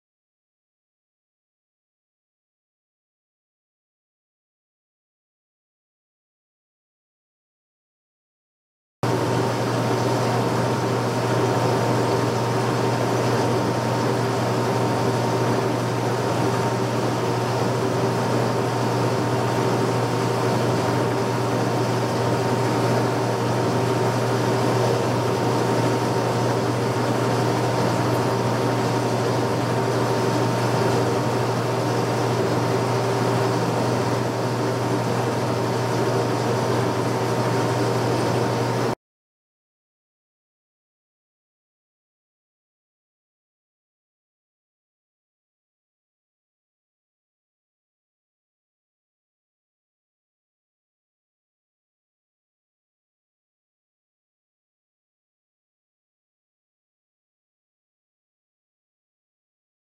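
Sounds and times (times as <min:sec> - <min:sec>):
deep machine hum: 0:09.0 - 0:39.0.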